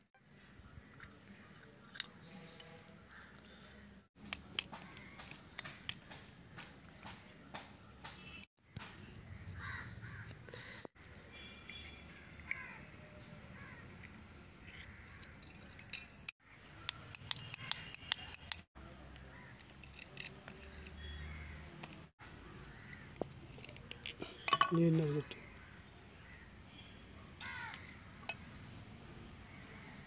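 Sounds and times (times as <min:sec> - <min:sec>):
screwdriver clicks and taps: 0:04.3 - 0:07.7
birds calling: 0:04.7 - 0:13.9, 0:20.6 - 0:21.7.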